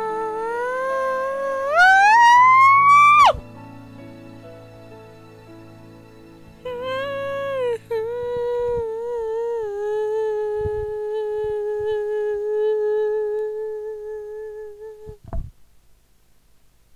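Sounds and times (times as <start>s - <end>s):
person humming a held note: 0.0s - 3.4s, 6.6s - 15.4s.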